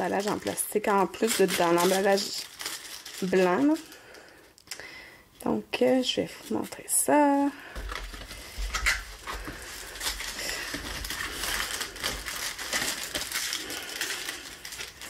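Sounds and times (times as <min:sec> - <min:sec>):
plastic packaging crinkling: 0:00.0 - 0:04.8, 0:07.7 - 0:15.0.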